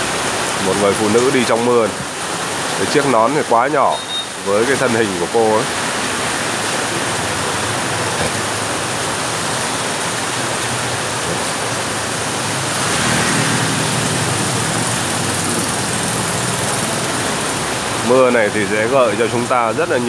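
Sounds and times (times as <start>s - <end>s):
heavy rain pouring on street: 0.0s - 20.0s
tyre hiss on wet road: 3.9s - 18.8s
motorbike passing: 5.8s - 18.7s.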